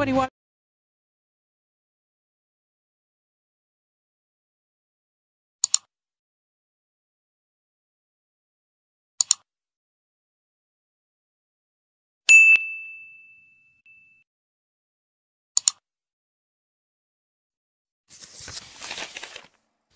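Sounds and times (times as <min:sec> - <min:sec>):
double mouse click: 0:05.6 - 0:05.9, 0:09.2 - 0:09.4, 0:15.6 - 0:15.8
bell-like ding: 0:12.3 - 0:14.2.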